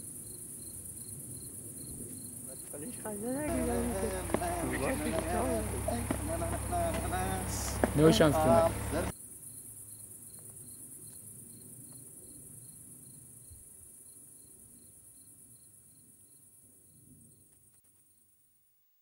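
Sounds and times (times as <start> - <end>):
high-pitched insect trill: 0.0 - 5.4, 8.5 - 17.5
cricket chirping: 0.0 - 18.6.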